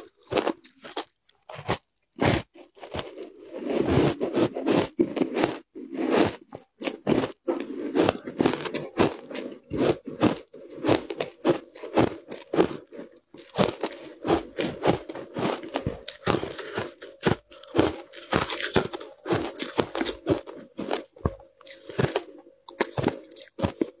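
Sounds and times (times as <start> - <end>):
crunching shaved ice: 8.1 - 24.0.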